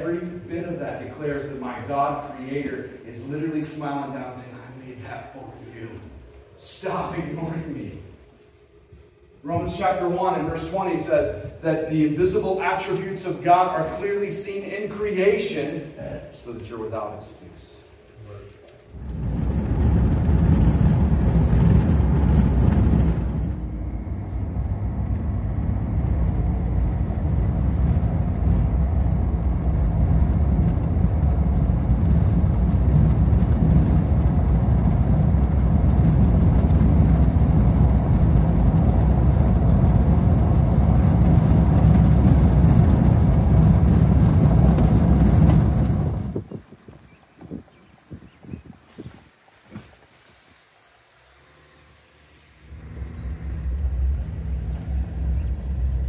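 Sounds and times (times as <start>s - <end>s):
vehicle engine rumble: 18.2s - 48.4s, 50.6s - 56.0s.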